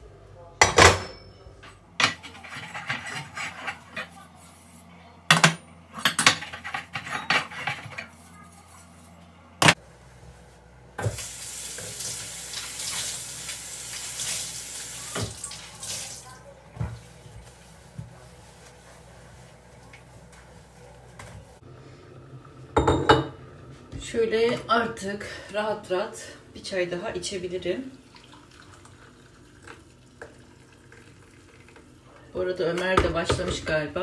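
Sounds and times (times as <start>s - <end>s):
tap water running: 11.0s - 21.6s, 27.6s - 32.0s.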